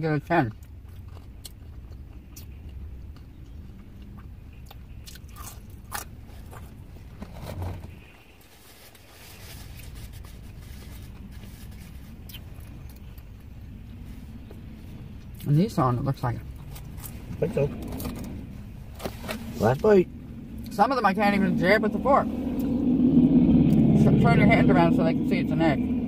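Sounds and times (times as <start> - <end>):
steady low hum: 0.0 - 26.0
chewing crunchy food: 0.4 - 6.8.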